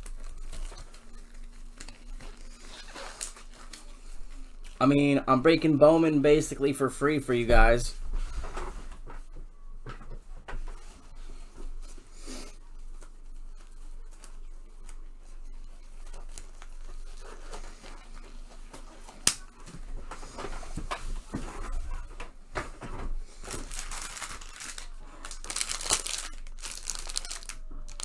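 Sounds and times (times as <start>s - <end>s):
packaging tearing and crinkling: 0.0s - 3.9s, 23.4s - 28.0s.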